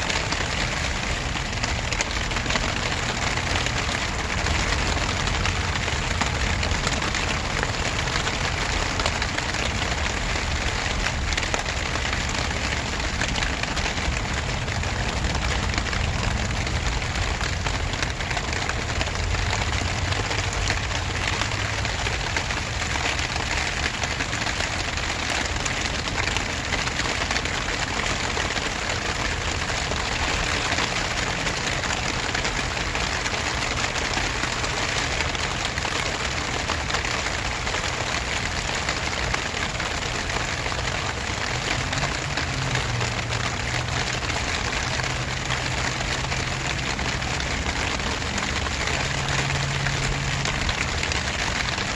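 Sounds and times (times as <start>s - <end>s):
rain falling on grass: 0.0s - 51.9s.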